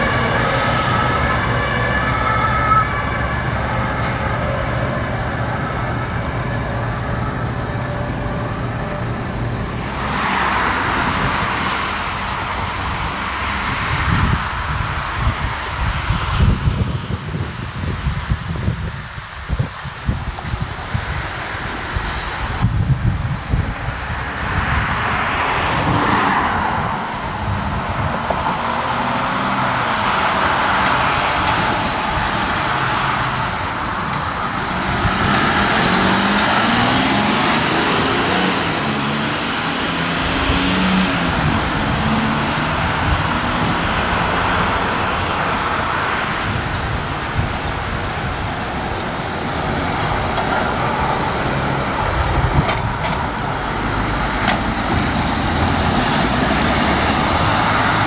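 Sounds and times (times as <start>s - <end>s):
road traffic noise: 0.0s - 58.0s
van engines pulling away: 20.9s - 58.0s.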